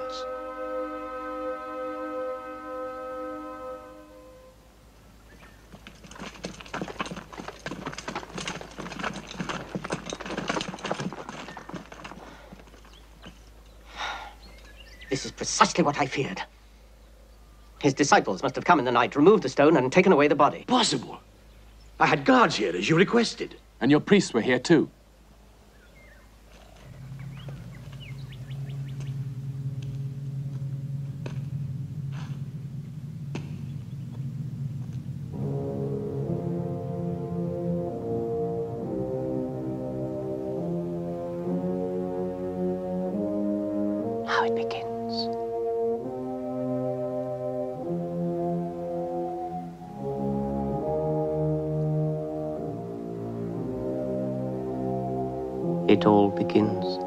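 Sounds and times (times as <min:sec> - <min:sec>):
low sustained brass note: 0:00.0 - 0:07.1, 0:26.8 - 0:57.0
faint bird chirps: 0:05.2 - 0:05.7, 0:12.8 - 0:15.4, 0:16.8 - 0:17.8, 0:25.7 - 0:29.4, 0:33.4 - 0:34.4
footsteps on stony ground: 0:05.4 - 0:13.8, 0:26.4 - 0:31.6.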